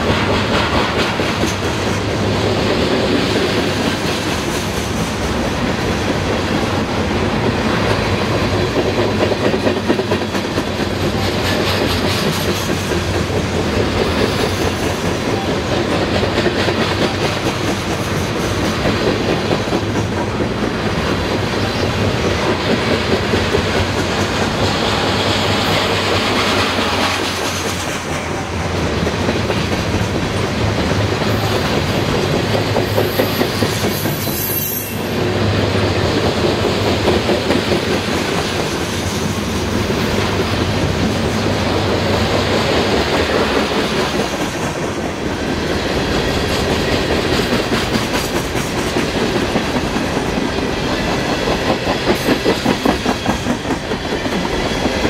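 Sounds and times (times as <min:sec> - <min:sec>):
freight train rolling past: 0:00.0 - 0:55.0
train wheels clicking: 0:00.0 - 0:55.0.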